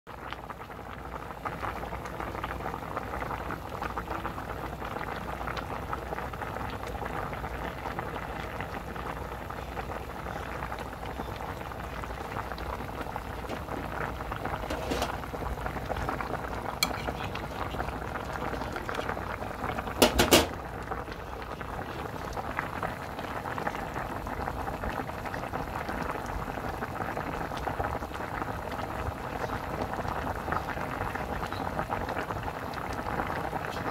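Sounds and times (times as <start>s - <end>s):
broth bubbling in a pot: 0.1s - 33.9s.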